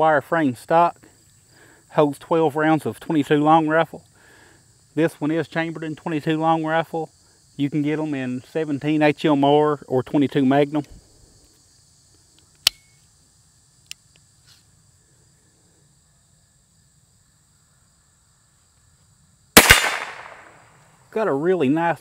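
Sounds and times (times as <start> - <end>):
metallic clicks of rifle action: 12.5 - 12.9
rifle shot: 19.6 - 20.8.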